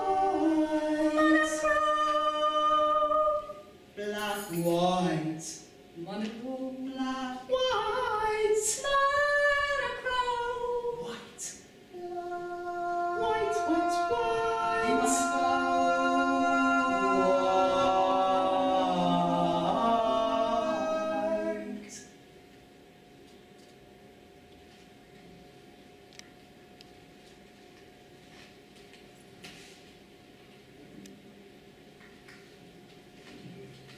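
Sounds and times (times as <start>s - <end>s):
women singing wordlessly: 0.0s - 4.6s, 6.0s - 22.1s.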